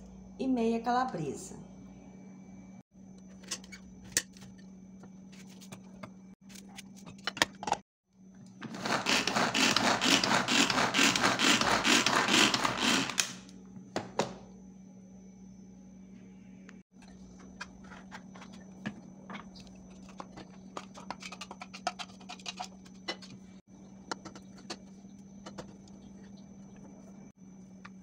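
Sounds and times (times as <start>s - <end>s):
pull-cord chopper whirring rattle: 8.7s - 13.4s.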